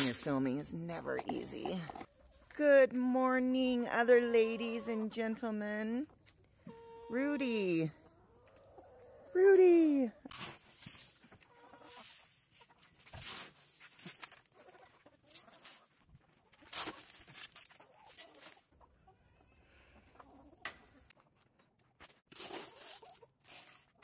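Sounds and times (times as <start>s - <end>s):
hens clucking: 0.0s - 2.5s, 3.6s - 24.0s.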